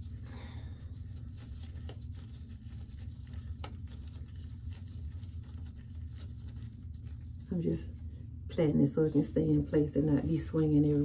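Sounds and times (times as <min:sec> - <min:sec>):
gloved hands rustling: 0:00.0 - 0:08.0
low hum: 0:00.0 - 0:11.0.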